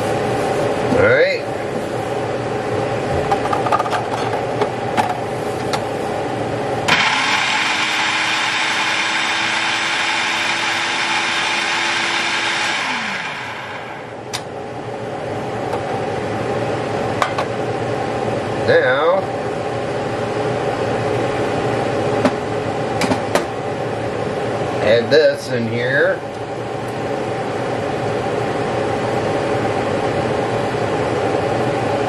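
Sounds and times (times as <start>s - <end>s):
food processor motor running: 6.9s - 14.2s.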